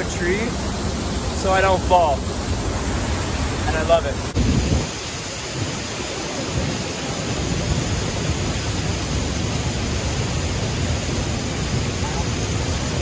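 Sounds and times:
waterfall rushing: 0:00.0 - 0:13.0.

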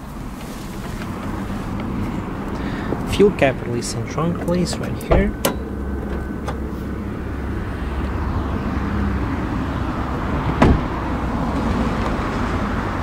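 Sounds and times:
low outdoor rumble: 0:00.0 - 0:13.0
sharp thump: 0:10.6 - 0:10.9.

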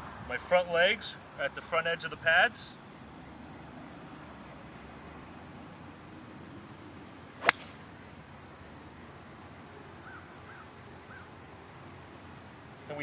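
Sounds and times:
golf club striking ball: 0:07.4 - 0:07.8.

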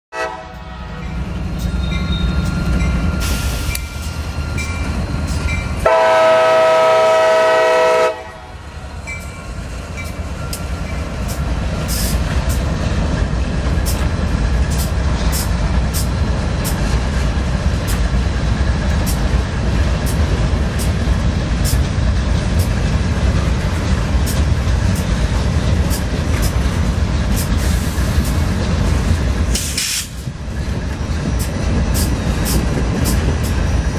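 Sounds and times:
train horn blast: 0:00.1 - 0:01.1, 0:05.8 - 0:08.7
wheels clicking over rail joints: 0:09.1 - 0:33.9.

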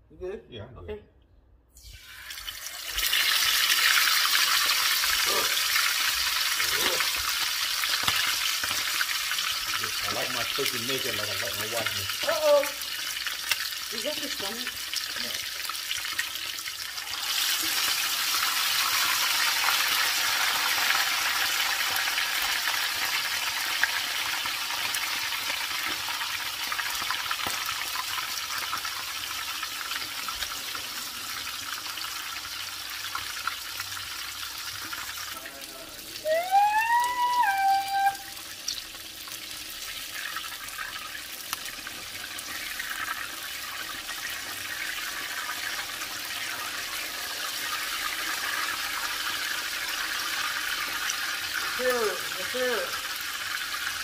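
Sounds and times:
oil hissing and crackling: 0:01.8 - 0:36.2, 0:38.3 - 0:54.0
short pitched tone: 0:36.3 - 0:38.3.

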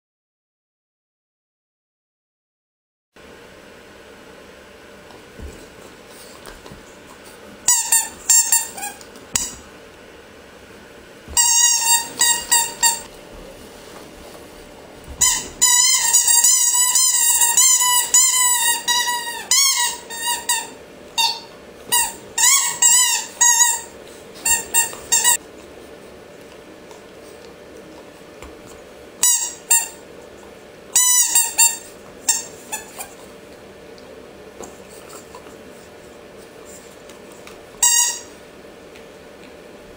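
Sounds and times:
squeaky chew toy squeaking: 0:07.7 - 0:09.6, 0:11.4 - 0:13.1, 0:15.2 - 0:25.4, 0:29.2 - 0:30.0, 0:31.0 - 0:33.1, 0:37.8 - 0:38.3.

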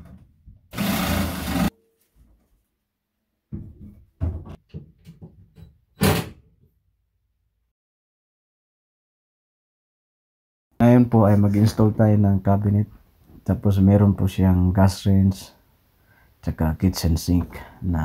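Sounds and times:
corded power tool burst: 0:00.7 - 0:01.7
power drill: 0:00.7 - 0:01.7
knocks and clunks of sink: 0:03.5 - 0:05.7.

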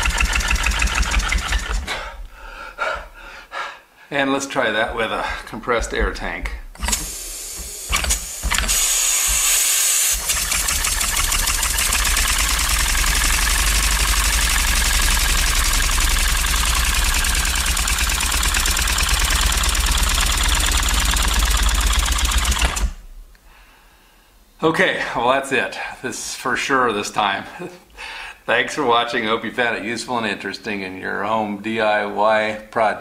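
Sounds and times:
model engine exhaust puffs: 0:00.0 - 0:02.3, 0:06.7 - 0:23.0
air hiss: 0:06.8 - 0:10.4.

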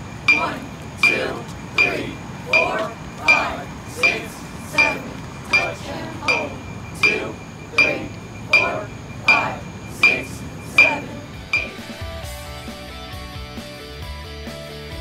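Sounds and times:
metronome clicking: 0:04.8 - 0:07.2, 0:07.8 - 0:09.4, 0:10.8 - 0:11.8.

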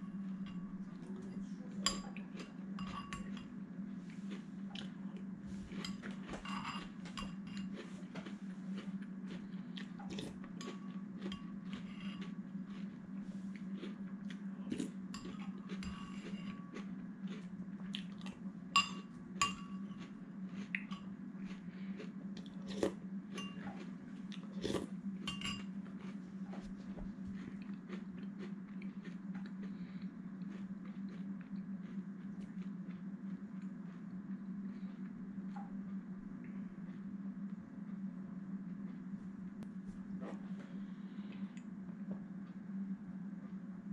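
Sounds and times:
steady low hum: 0:00.0 - 0:43.9
chewing and crunching cereal: 0:00.1 - 0:42.6
metal spoon clinking on bowl: 0:02.8 - 0:03.5, 0:05.8 - 0:07.7, 0:18.8 - 0:20.0, 0:23.4 - 0:23.7, 0:25.2 - 0:25.7.

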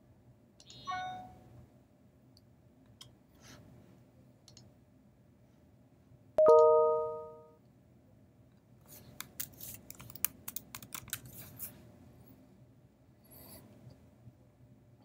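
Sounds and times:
typing on computer keyboard: 0:09.2 - 0:11.4.

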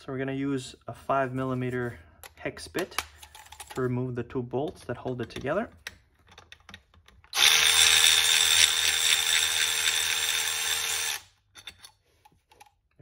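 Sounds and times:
electric screwdriver whining: 0:07.3 - 0:11.3.

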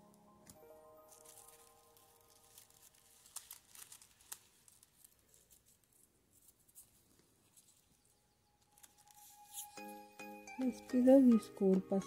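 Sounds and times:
crepe paper rustling and crinkling: 0:01.0 - 0:09.9.

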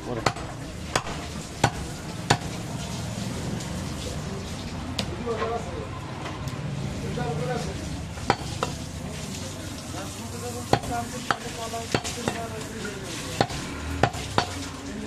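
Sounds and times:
cleaver chopping meat and bone: 0:00.1 - 0:02.6, 0:08.2 - 0:08.8, 0:10.6 - 0:14.7.

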